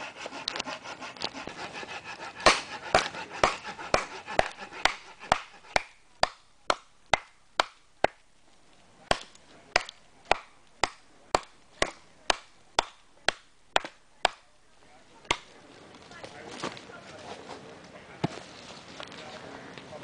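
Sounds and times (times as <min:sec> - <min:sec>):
axe chopping into log: 0:02.4 - 0:08.2, 0:09.0 - 0:14.5, 0:15.3 - 0:15.5.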